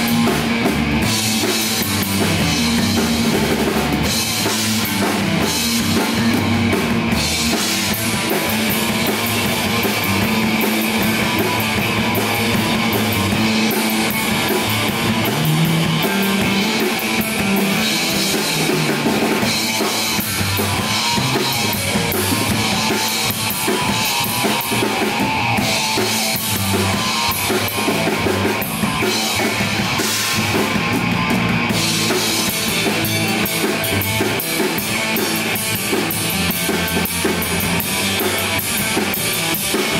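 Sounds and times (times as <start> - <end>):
rock band playing: 0.0 - 39.9.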